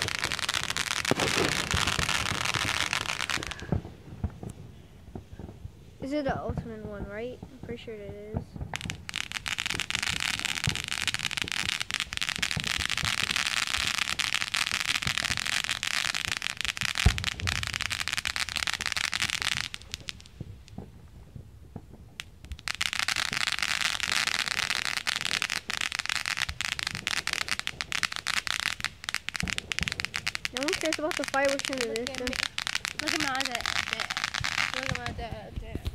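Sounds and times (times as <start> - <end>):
sharp firework bang: 0.0 - 5.6, 16.7 - 18.6
firework crackling with rapid pops: 0.0 - 35.9.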